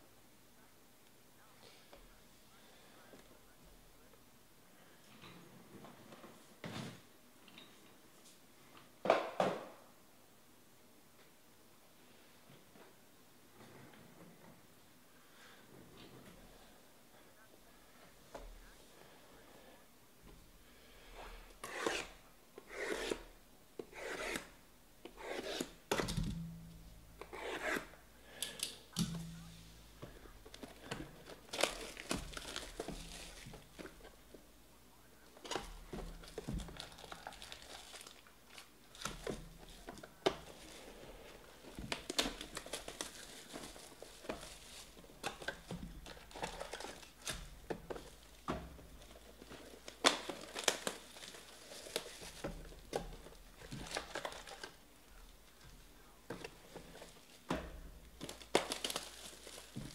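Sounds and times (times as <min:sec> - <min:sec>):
plastic crinkling: 0:30.5 - 0:34.1, 0:35.5 - 0:55.3, 0:58.0 - 0:59.9
shrink-wrap ripping: 0:36.8 - 0:39.1, 0:58.2 - 0:59.9.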